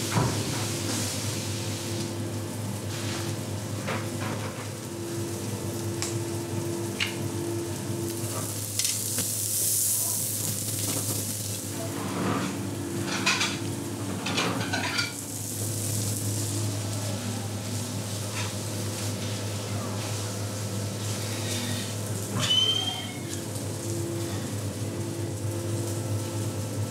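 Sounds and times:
kitchen hiss: 8.2s - 13.6s, 14.6s - 24.7s.

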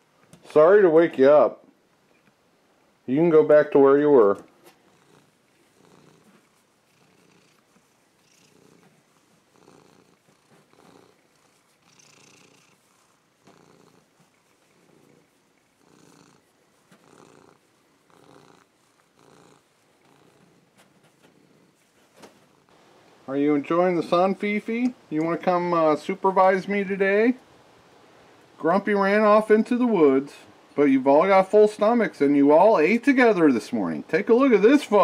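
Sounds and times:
cat purring: 4.6s - 28.7s.

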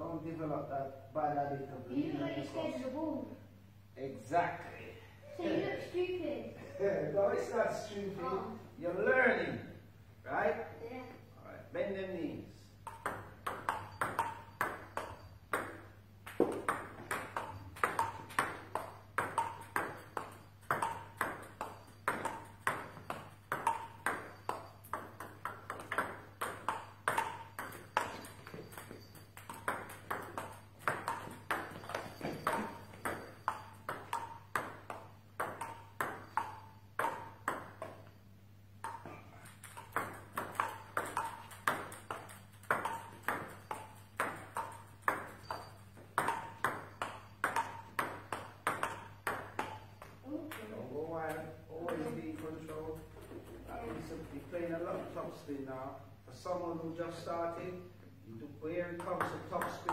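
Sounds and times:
table tennis balls clicking: 12.7s - 54.5s, 58.8s - 59.9s.

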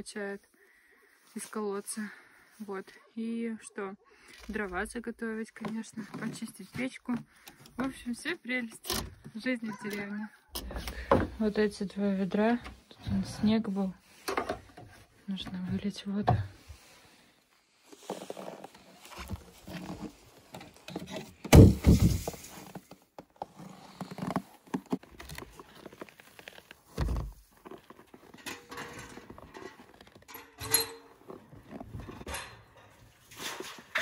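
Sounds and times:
knocks and scrapes: 17.9s - 34.0s
wooden lid thumping: 21.5s - 22.4s.

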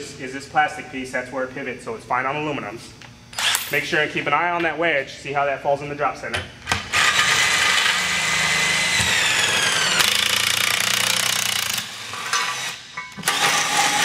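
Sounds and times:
air impact wrench hammering: 6.7s - 14.0s.

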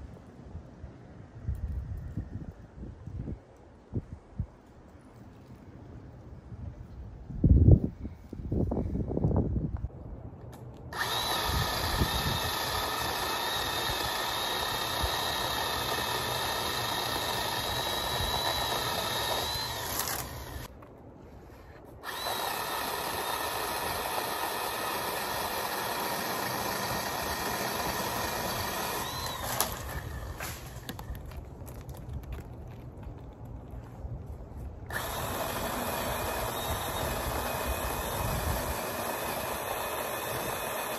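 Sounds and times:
electric pole saw motor whine: 10.9s - 20.7s, 22.0s - 31.1s, 34.9s - 40.9s.

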